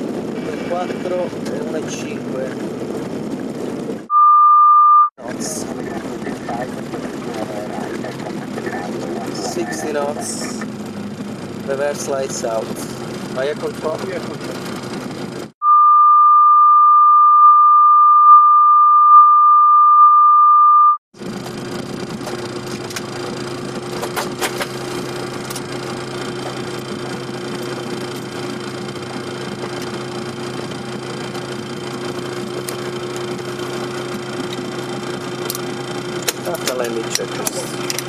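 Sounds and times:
airliner cockpit drone: 0.0s - 4.3s, 5.2s - 18.3s, 21.2s - 38.0s
single-pitch beep: 4.1s - 5.1s, 15.6s - 21.0s.

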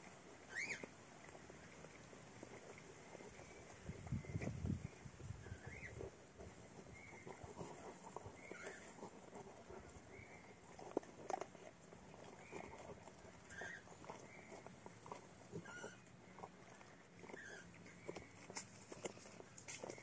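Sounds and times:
dog gnawing a hard chew: 0.0s - 20.0s.

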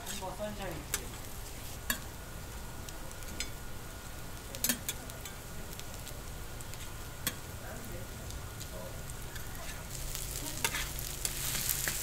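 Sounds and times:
patties sizzling on a griddle: 0.0s - 12.0s
metal clicks against griddle: 4.6s - 5.4s.

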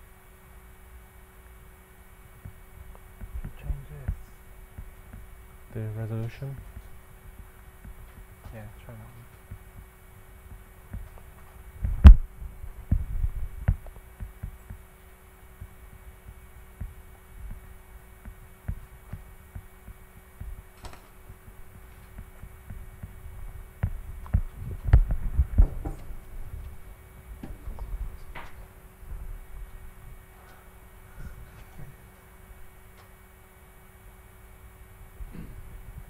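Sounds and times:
steady electrical hum: 0.0s - 36.0s
microphone handling thumps: 9.4s - 14.8s, 15.6s - 30.2s.

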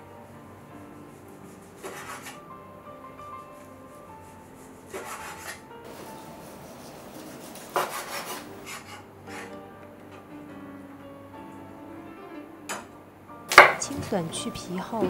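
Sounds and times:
soft background music: 0.0s - 15.0s
knife slicing on wooden board: 1.8s - 2.4s, 4.9s - 5.6s, 7.2s - 9.5s.

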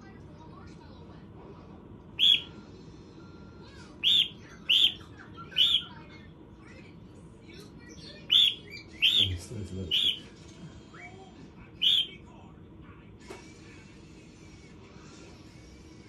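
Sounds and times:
cockatiel chirping: 2.2s - 2.6s, 4.0s - 6.0s, 8.1s - 10.3s, 11.8s - 12.2s.

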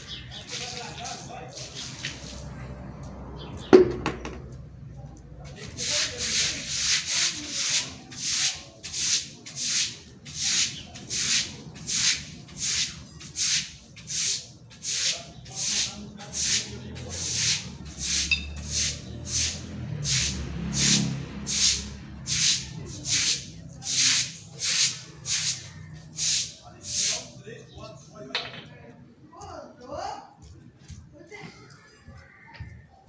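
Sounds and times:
scrubbing strokes: 0.0s - 2.9s, 5.5s - 27.4s
sharp knock: 3.7s - 4.4s.

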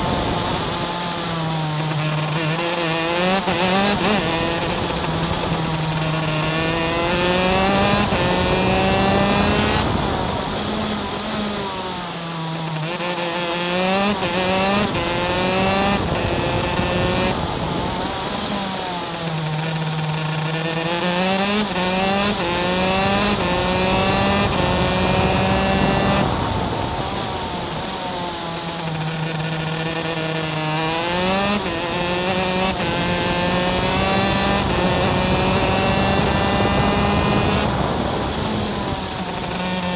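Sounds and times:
wind noise: 0.0s - 12.0s, 12.9s - 39.9s
racing kart engine revving: 0.0s - 39.9s.

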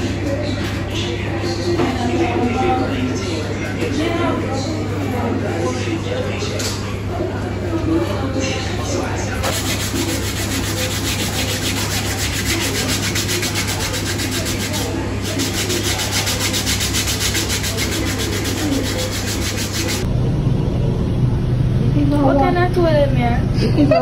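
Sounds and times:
faint voices: 0.0s - 24.0s
scratchy rubbing on microphone: 9.4s - 20.1s.

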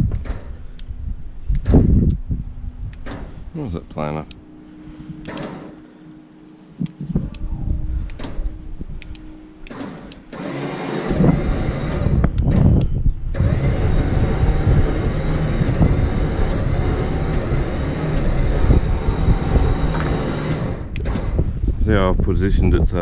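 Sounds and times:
winch motor running under load: 9.7s - 12.4s, 13.3s - 21.4s.

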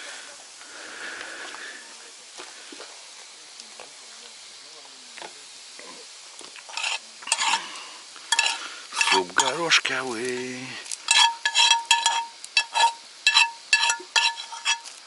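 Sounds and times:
metal spoon clinking in pot: 8.3s - 9.6s, 11.1s - 14.9s.

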